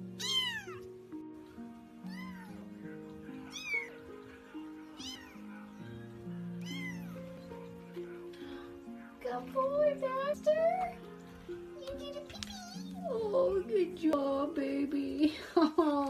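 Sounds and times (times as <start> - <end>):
background music: 0.0 - 16.0
kitten meowing: 0.1 - 0.9, 2.0 - 2.6, 3.5 - 4.0, 5.0 - 7.4.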